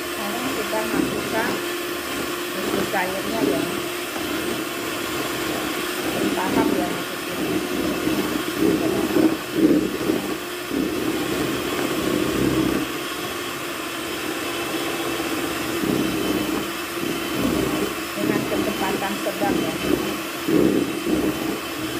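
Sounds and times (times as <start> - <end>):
electric hand mixer whirring: 0.0 - 21.9.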